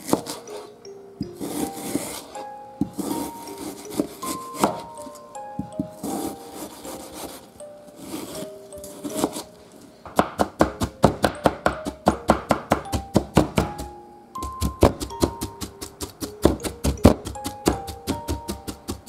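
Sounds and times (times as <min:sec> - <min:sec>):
knife chopping on cutting board: 0:00.0 - 0:00.6, 0:02.8 - 0:04.9, 0:09.1 - 0:09.4, 0:10.1 - 0:19.0.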